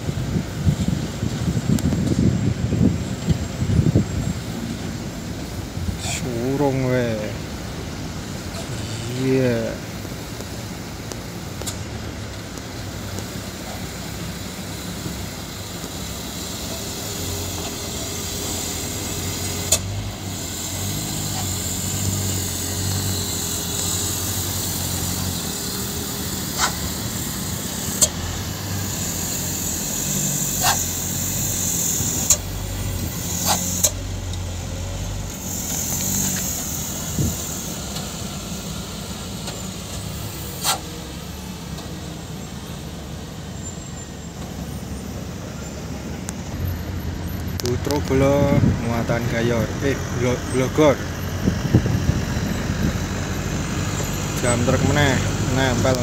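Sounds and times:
diesel dump trucks running: 0:00.0 - 0:56.0.

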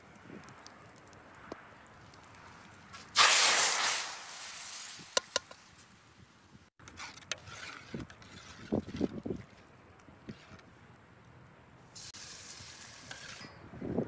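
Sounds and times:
loud oil sizzle: 0:03.2 - 0:05.4, 0:12.0 - 0:13.4.

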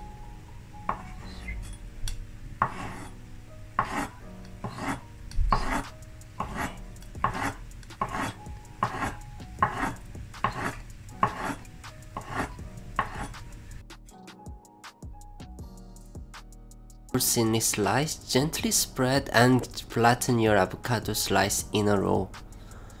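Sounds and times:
knife slicing on wooden board: 0:02.6 - 0:03.1, 0:03.8 - 0:11.6, 0:12.2 - 0:13.4.

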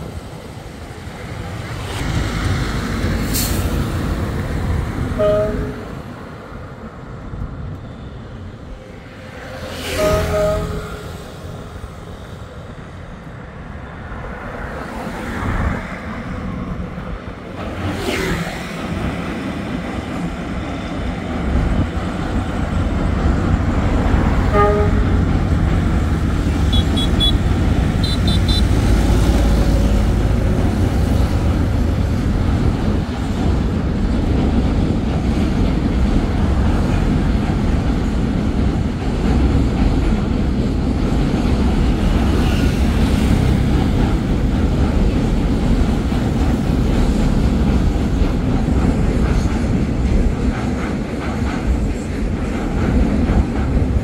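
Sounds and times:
road traffic passing: 0:00.0 - 0:53.8
freight train rumbling on bridge: 0:00.0 - 0:54.0
car horn toots: 0:26.7 - 0:28.7.

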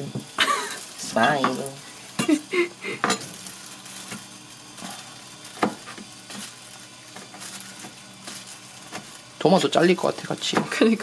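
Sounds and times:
knife chopping on plastic board: 0:05.6 - 0:06.0.

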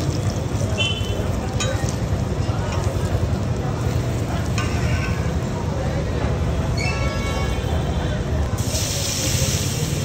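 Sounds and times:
oil sizzling on griddle: 0:08.6 - 0:10.0.

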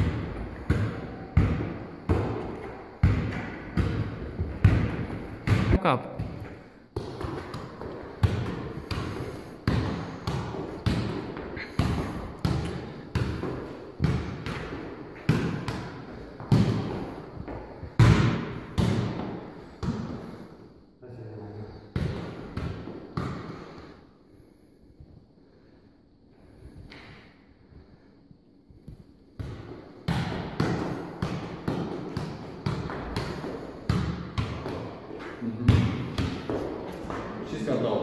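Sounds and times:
football kicked with foot thuds: 0:17.9 - 0:20.1, 0:29.4 - 0:37.2.

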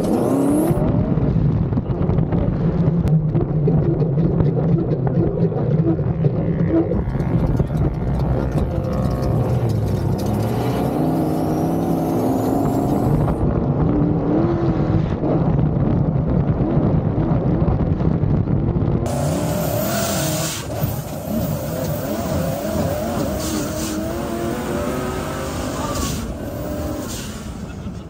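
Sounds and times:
off-road engines revving: 0:00.0 - 0:01.2, 0:03.3 - 0:15.5, 0:19.0 - 0:28.0.

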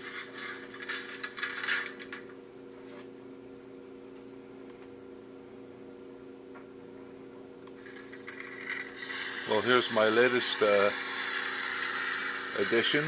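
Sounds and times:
low electrical hum: 0:00.0 - 0:13.0
hiss: 0:09.0 - 0:12.5.

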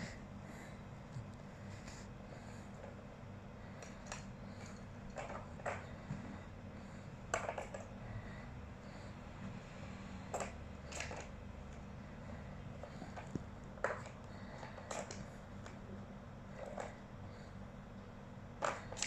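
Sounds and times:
plastic balls clicking on toy track: 0:10.3 - 0:11.3, 0:18.6 - 0:19.0.

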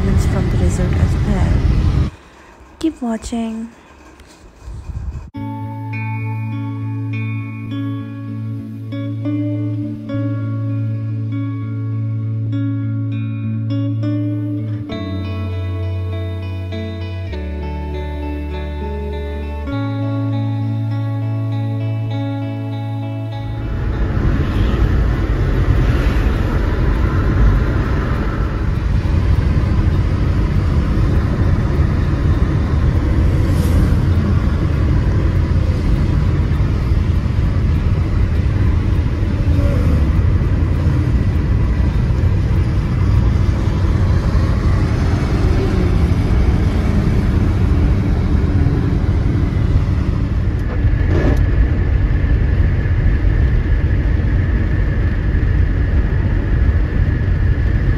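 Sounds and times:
car interior road rumble: 0:00.0 - 0:02.4, 0:23.4 - 0:57.9.

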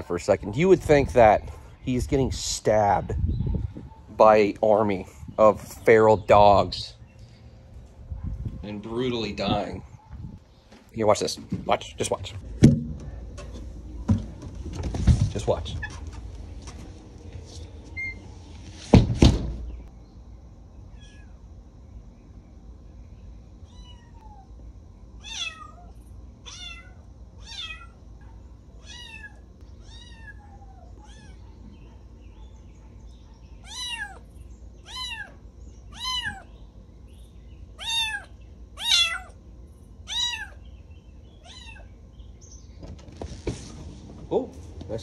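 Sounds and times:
kitten meowing: 0:25.2 - 0:25.9, 0:26.5 - 0:28.0, 0:28.8 - 0:31.4, 0:33.6 - 0:34.3, 0:34.9 - 0:36.5, 0:37.8 - 0:39.4, 0:40.1 - 0:40.6, 0:41.4 - 0:41.9.

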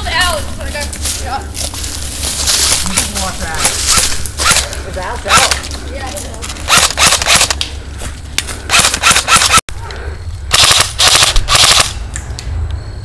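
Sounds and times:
airsoft guns firing bursts: 0:05.3 - 0:05.6, 0:06.7 - 0:07.6, 0:08.7 - 0:09.6, 0:10.5 - 0:12.0.

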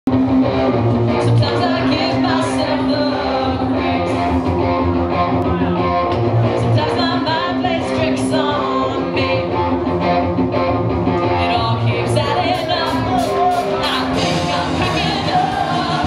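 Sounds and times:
bass guitar: 0:00.1 - 0:16.0
distorted electric guitars: 0:00.1 - 0:16.0
female lead vocal: 0:01.2 - 0:04.5, 0:06.6 - 0:09.7, 0:11.2 - 0:16.0
drum kit with cymbals: 0:12.3 - 0:16.0.

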